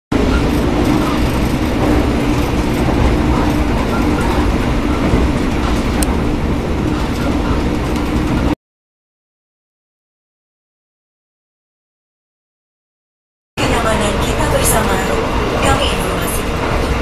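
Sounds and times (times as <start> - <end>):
train running rumble: 0.1 - 8.6, 13.6 - 17.0.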